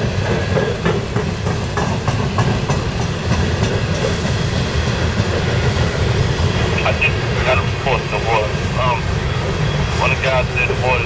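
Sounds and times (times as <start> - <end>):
wheels clanking over rail joints: 0.0 - 6.3
train wheels rumbling on rail: 0.0 - 11.0.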